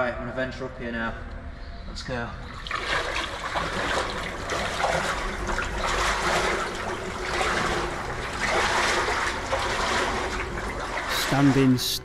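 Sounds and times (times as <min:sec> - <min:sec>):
boots sloshing through water and mud: 0:02.6 - 0:11.6.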